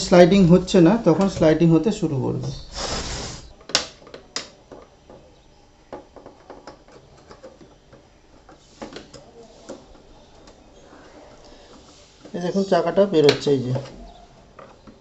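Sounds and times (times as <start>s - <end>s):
metal scrape: 2.6s - 3.5s.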